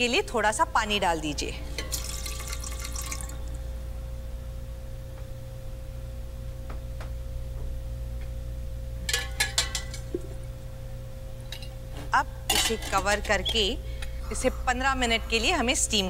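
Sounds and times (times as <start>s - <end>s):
steady low hum: 0.0s - 16.0s
metal clinking on steel pot: 1.7s - 3.4s, 9.1s - 10.1s, 12.5s - 13.4s.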